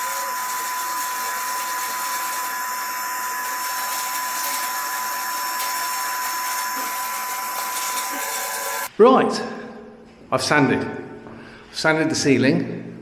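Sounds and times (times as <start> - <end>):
vacuum cleaner whining: 0.0 - 8.9.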